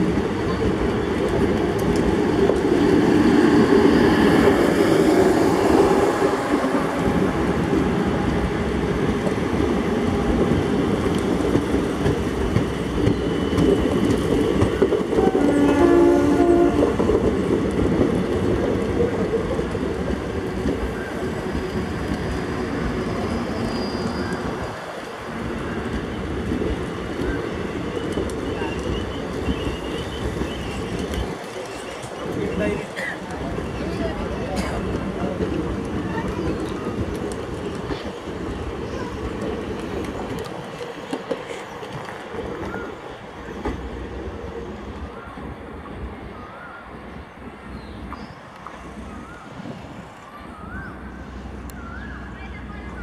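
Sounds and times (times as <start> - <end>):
train horn: 15.1 - 17.1.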